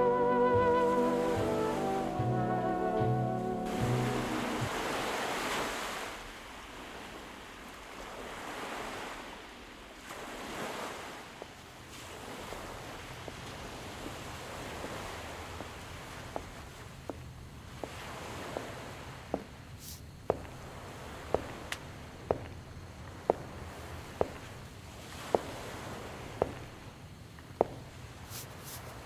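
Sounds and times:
music: 0:00.0 - 0:04.8
ocean surf washing onto beach: 0:03.6 - 0:16.6.

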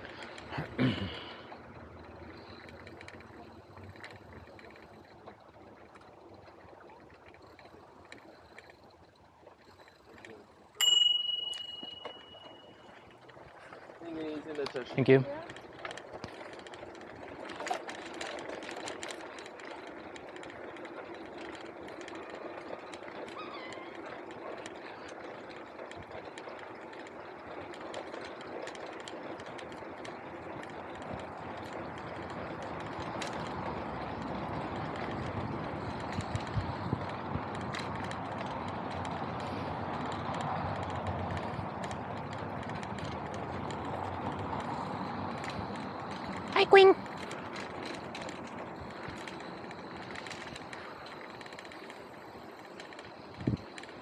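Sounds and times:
bike rolling with light clicks: 0:00.0 - 0:54.0
bicycle bell ringing: 0:10.8 - 0:13.1.

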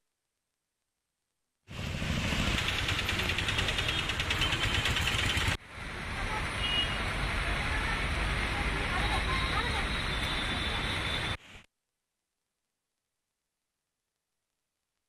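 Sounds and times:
vehicle engines running: 0:01.7 - 0:06.4
tyre noise on wet road: 0:01.7 - 0:11.4.

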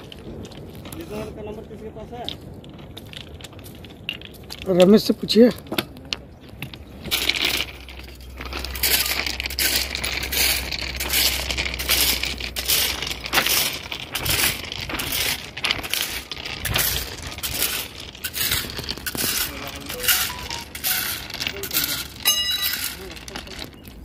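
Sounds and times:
steel bar scraping stones: 0:06.5 - 0:24.0.

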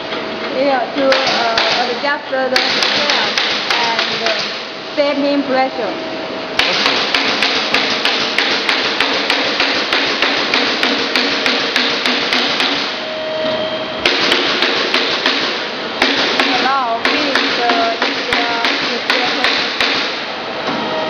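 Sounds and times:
constant noisy hum: 0:00.0 - 0:21.0
machinery knocking: 0:01.0 - 0:04.6, 0:06.6 - 0:12.9, 0:14.0 - 0:20.2.

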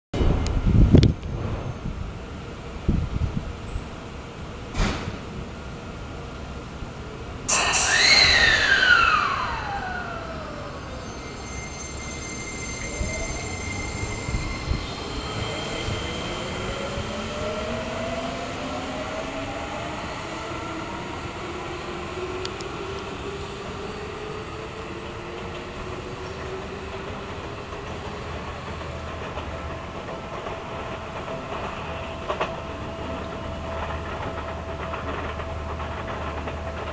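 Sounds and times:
burst with falling whine: 0:07.5 - 0:17.1
electric train motor whine: 0:07.5 - 0:24.6.

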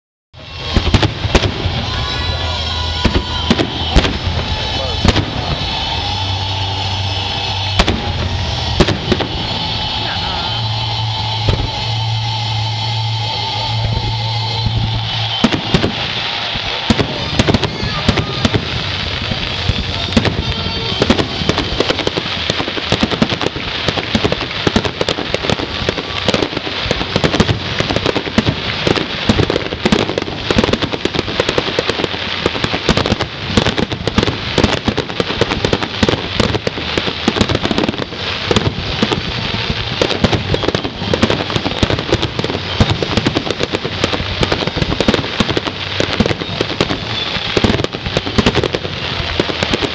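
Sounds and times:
fireworks barrage: 0:00.4 - 0:49.9.

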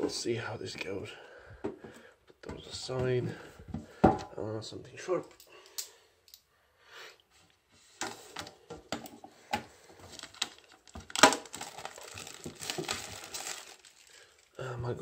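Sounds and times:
plastic wrap crinkling and tearing: 0:10.0 - 0:14.6.

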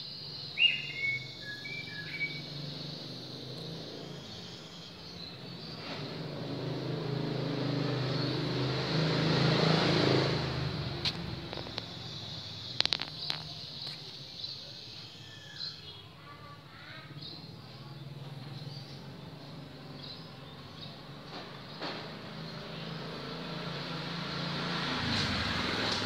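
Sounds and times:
motor vehicle passing by: 0:00.6 - 0:14.2, 0:17.2 - 0:26.0
sharp clicks: 0:11.0 - 0:14.0.

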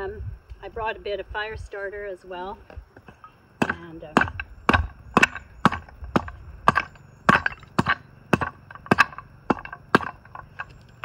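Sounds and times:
axe chopping wood: 0:03.6 - 0:10.4.

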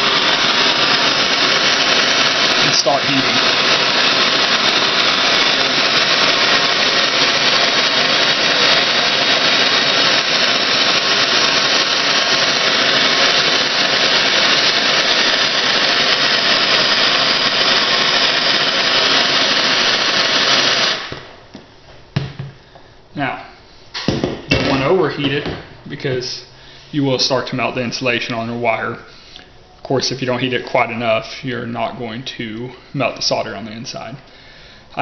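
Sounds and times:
gas torch flame hissing: 0:00.0 - 0:21.5.

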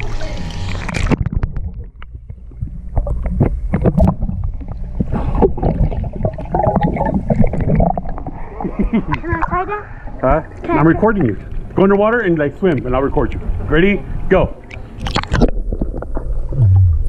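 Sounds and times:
muffled underwater rumbling: 0:00.0 - 0:17.0
bubbling and splashing clicks: 0:00.7 - 0:08.4, 0:14.6 - 0:17.0.

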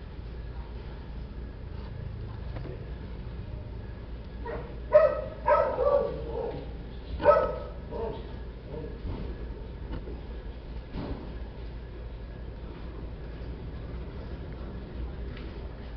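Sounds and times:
steady low hum: 0:00.0 - 0:15.9
dog barking in short yips: 0:07.2 - 0:08.2.

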